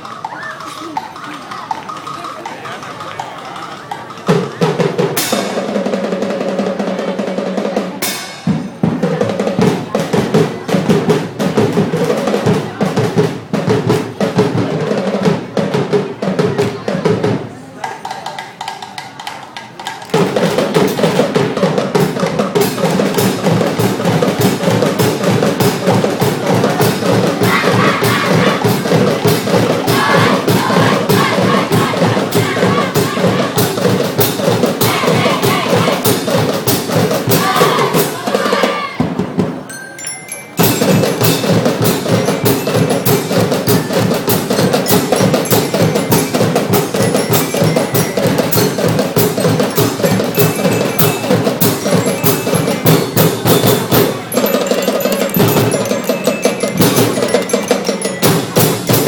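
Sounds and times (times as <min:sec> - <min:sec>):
percussion-heavy dance music: 0:26.3 - 0:39.0, 0:40.5 - 0:59.0.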